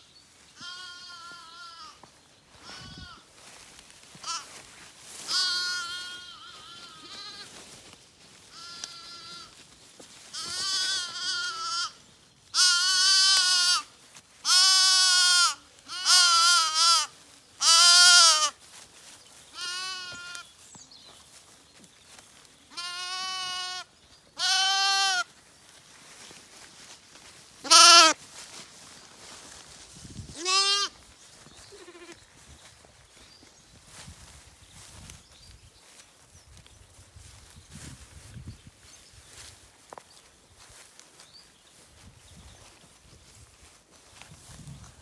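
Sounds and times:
lambs bleating: 0.6 - 2.0, 4.2 - 4.5, 5.3 - 7.6, 8.5 - 9.6, 10.3 - 12.0, 12.6 - 18.6, 19.5 - 20.4, 22.7 - 25.3, 27.6 - 28.2, 30.4 - 31.0, 31.7 - 32.2.

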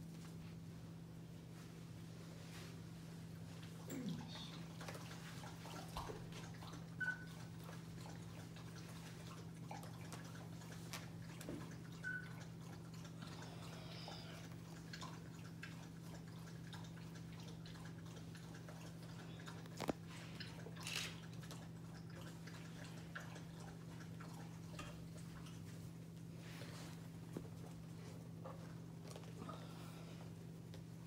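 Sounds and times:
puppy squeaks: 7.0 - 7.4, 12.0 - 12.4.

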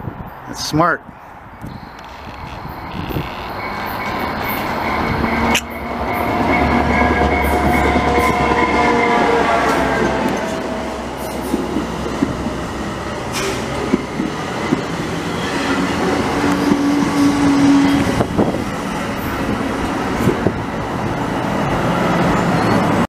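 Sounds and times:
diesel locomotive engine: 1.1 - 23.0
wheel squeal: 1.7 - 9.3
wheels clicking over rail joints: 2.0 - 8.6.

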